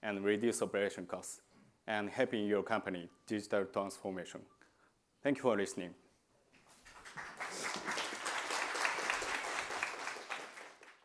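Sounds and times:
audience applauding: 6.7s - 11.0s.

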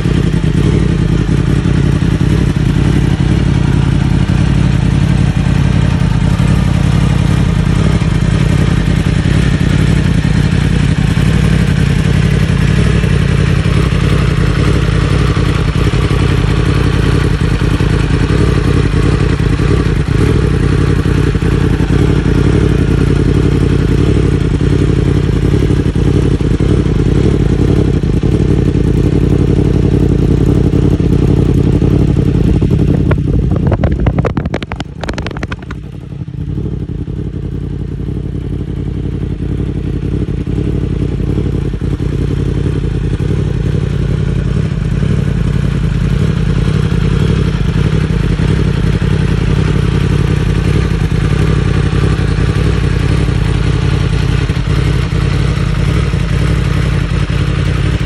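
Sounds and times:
motorcycle engine idling: 0.0s - 58.0s
short clatter: 33.1s - 36.0s.

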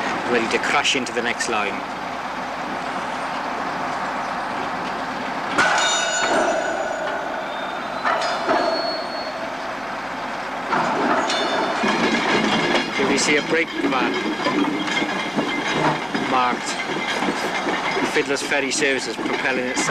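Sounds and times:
steel wheels rumbling on rails: 0.0s - 19.9s
metallic clank with ringing squeal: 5.6s - 9.9s, 10.7s - 19.9s.

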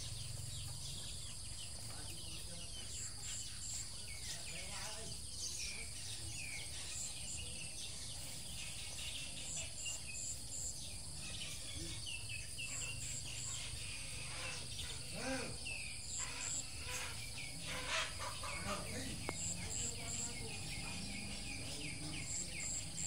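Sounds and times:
bird chirps: 0.0s - 23.0s
insect drone: 0.0s - 23.0s
low animal call: 12.6s - 23.0s.

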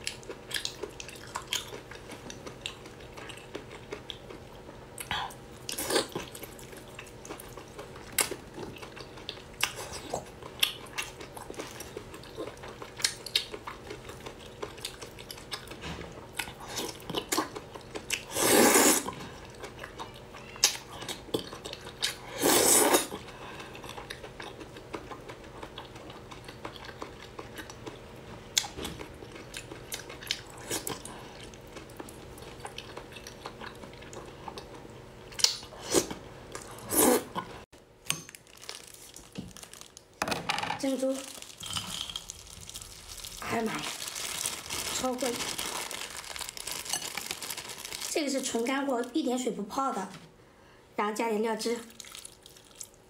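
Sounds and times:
person chewing wetly: 0.0s - 37.5s, 51.9s - 53.0s.

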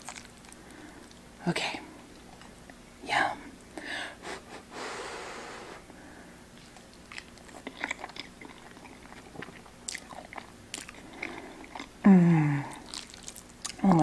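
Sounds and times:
wet chewing smacks: 6.5s - 12.0s, 12.7s - 14.0s
person humming mmm: 12.0s - 12.9s.

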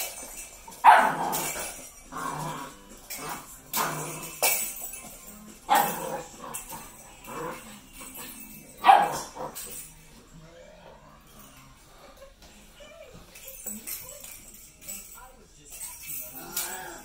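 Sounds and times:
jingle bells jingling: 0.0s - 17.0s
puppy barking: 0.8s - 1.4s, 8.8s - 9.4s.

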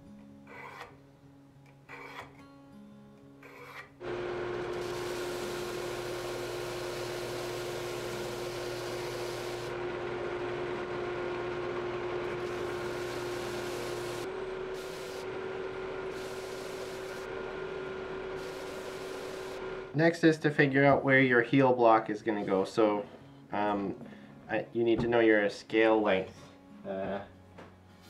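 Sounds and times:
belt sander running: 4.0s - 20.0s.

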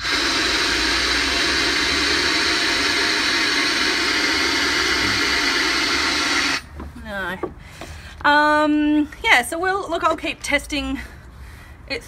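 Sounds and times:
compressed air hissing: 0.0s - 6.7s.

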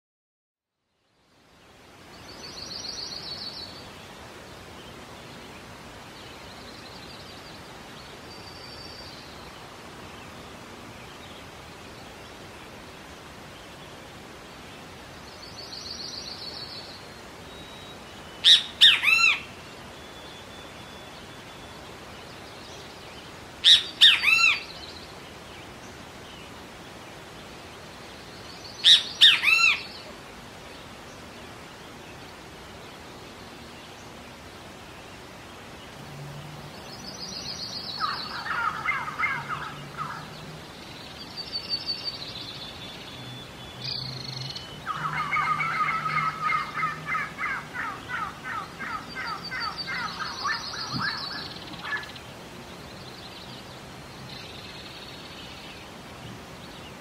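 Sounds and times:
outdoor hiss: 0.8s - 57.0s
bird calling with descending notes: 17.5s - 21.8s, 23.6s - 24.9s, 28.7s - 30.1s, 36.9s - 40.5s, 41.1s - 52.3s.

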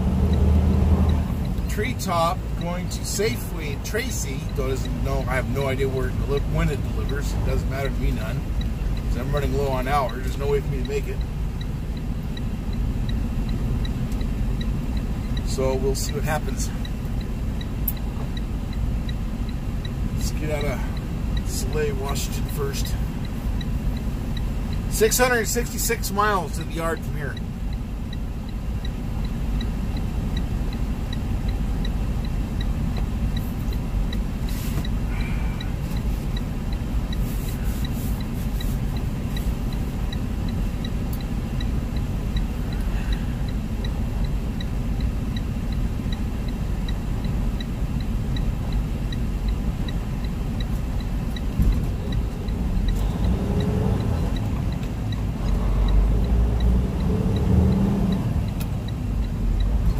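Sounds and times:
truck engine revving: 0.0s - 2.1s, 50.4s - 59.9s
diesel engine idling: 0.0s - 59.9s
faint regular tick: 0.3s - 16.2s, 16.8s - 59.9s.

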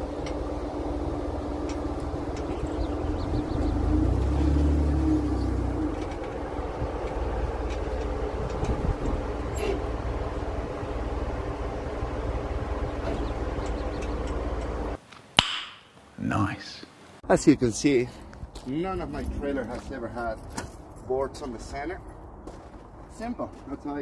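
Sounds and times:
low vehicle rumble: 0.0s - 15.0s, 17.3s - 24.0s
light rattles and clicks: 5.9s - 9.7s, 13.0s - 14.8s.

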